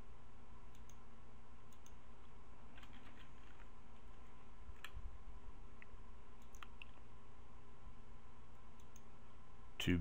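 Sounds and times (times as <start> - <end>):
steady low hum: 0.0 - 10.0
computer mouse clicks: 0.7 - 1.0, 1.7 - 5.0, 5.8 - 7.0, 8.5 - 9.1.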